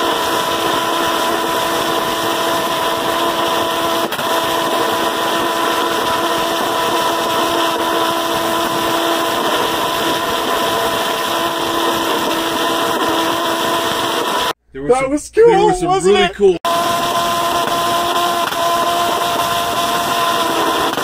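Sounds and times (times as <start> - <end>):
pulse jet engine running: 16.7 - 21.0.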